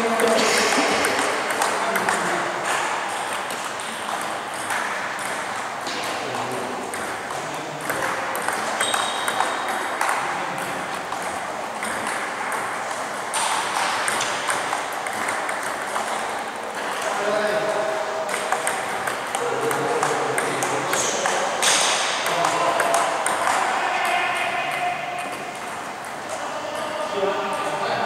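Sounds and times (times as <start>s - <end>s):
table tennis ball clicking: 1.0s - 6.2s, 6.8s - 17.0s, 18.3s - 23.7s.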